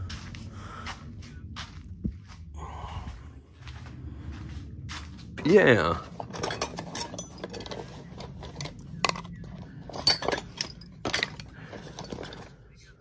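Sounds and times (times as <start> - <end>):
metallic clinks and knocks: 6.2 - 12.6.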